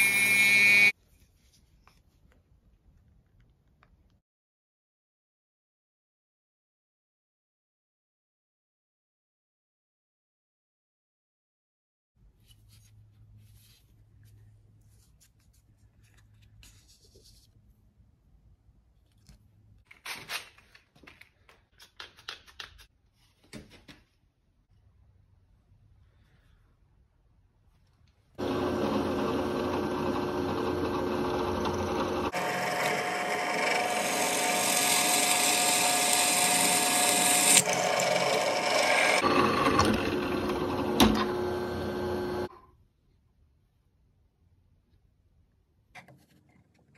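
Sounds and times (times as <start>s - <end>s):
drill press boring through wood: 0.0s - 0.9s, 28.4s - 42.5s.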